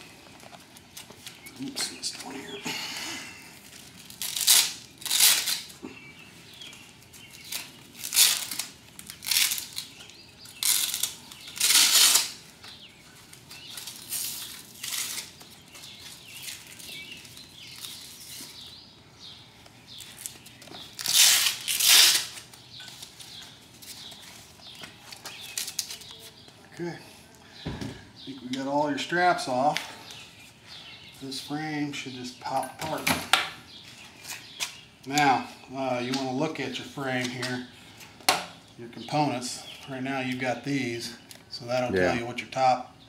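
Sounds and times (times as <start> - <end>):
velcro ripping open: 3.7 - 5.8, 7.3 - 12.4, 13.6 - 18.5, 20.0 - 22.6.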